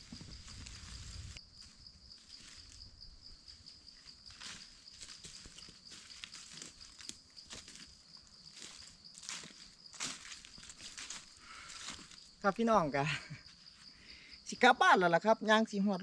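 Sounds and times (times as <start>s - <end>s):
footsteps in dry leaves and grass: 0.0s - 12.4s
high-pitched insect trill: 0.0s - 16.0s.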